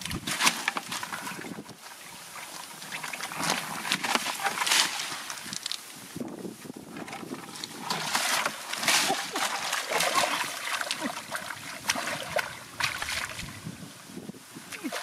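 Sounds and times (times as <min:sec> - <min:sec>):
hands splashing in muddy water: 0:07.7 - 0:13.6.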